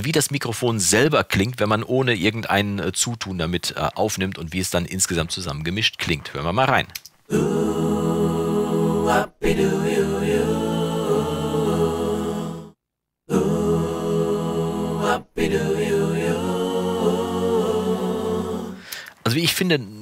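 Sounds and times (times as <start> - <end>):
choir singing sustained chords: 7.3 - 19.0.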